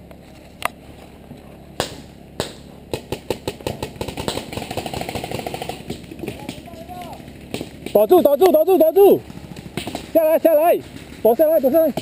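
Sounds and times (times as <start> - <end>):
game gunshots: 1.8 - 6.7
automatic gunfire rattle: 3.4 - 7.7.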